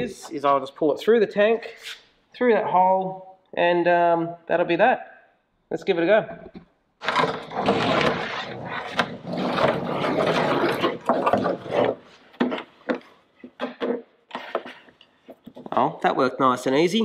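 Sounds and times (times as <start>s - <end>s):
plastic tank rubbing and scraping: 7.0s - 13.0s.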